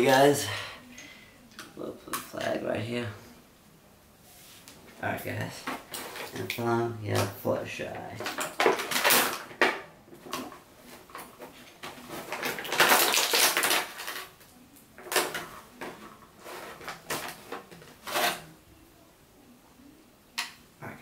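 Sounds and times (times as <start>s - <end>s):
packaging crinkling and rustling: 5.6s - 18.5s.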